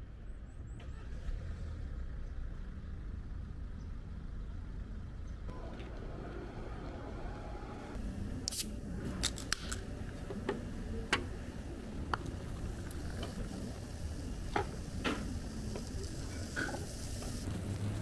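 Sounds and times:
can cracked open with pop: 8.5 - 9.8
hiss of escaping gas: 12.9 - 17.6.

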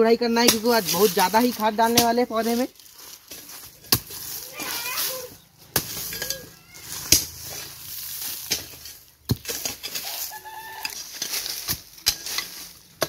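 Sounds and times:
hoe chopping into dry ground: 3.3 - 4.4, 5.6 - 10.3.

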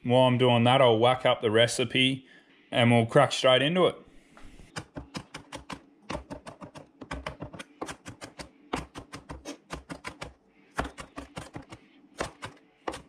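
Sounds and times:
knife chopping on plastic board: 4.7 - 13.0.

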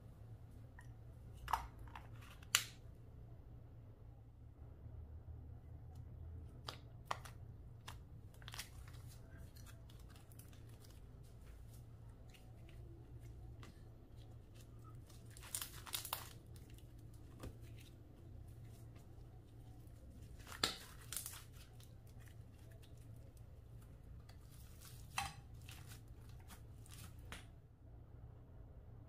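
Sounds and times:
steady low hum: 0.0 - 29.0
sticky slime clicks and crackles: 15.1 - 17.1.

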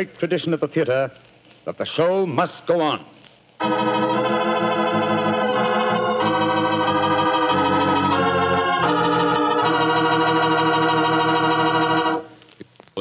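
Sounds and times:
organ playing slow chords: 3.6 - 12.4.

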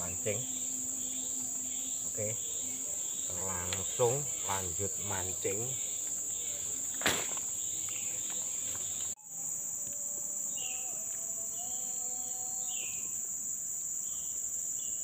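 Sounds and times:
insects shrilling: 0.0 - 15.0.

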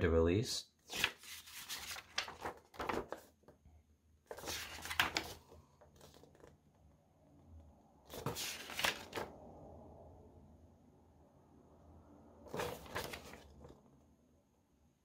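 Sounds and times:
paper pages rustling: 0.8 - 3.6, 4.3 - 6.5, 8.1 - 9.3, 12.5 - 13.8.

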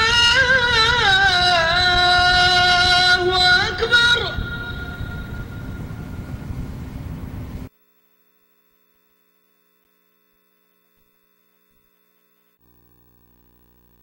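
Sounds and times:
loud noisy hum: 0.0 - 7.7.

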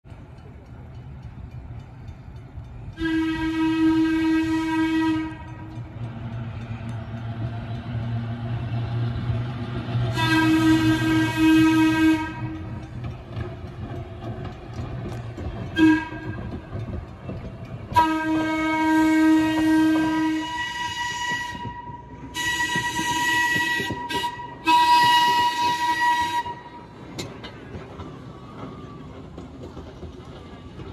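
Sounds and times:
wheels rumbling on rails: 0.0 - 30.9
trolley air whistle blasts: 3.0 - 5.7, 10.1 - 12.8, 15.7 - 16.6, 17.9 - 27.0.

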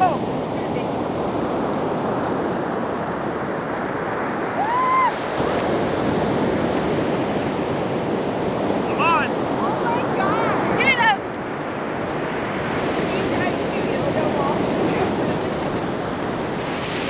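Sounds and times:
ocean surf breaking: 0.0 - 17.0
wind buffeting microphone: 0.0 - 17.0.

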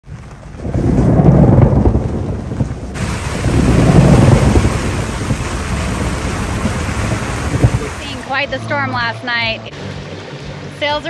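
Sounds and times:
thunder rumbling: 0.0 - 8.5
rain hissing: 0.1 - 9.1.

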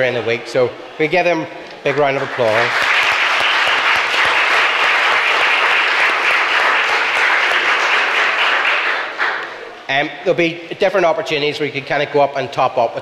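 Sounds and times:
people clapping: 1.8 - 9.9.

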